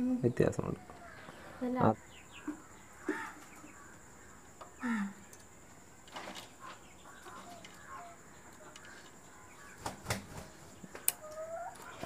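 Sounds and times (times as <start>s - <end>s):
bird chirps: 0.6s - 5.4s.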